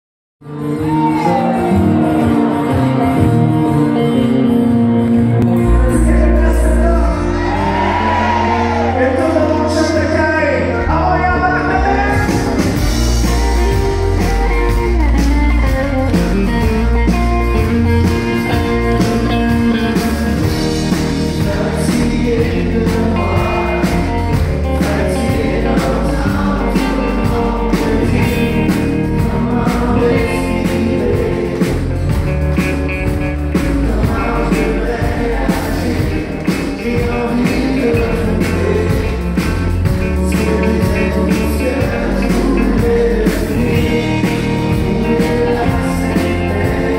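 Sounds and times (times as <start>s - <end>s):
acoustic and electric guitars: 0.4s - 46.9s
man singing: 5.4s - 17.2s, 18.0s - 46.9s
drum kit beat: 11.4s - 46.9s.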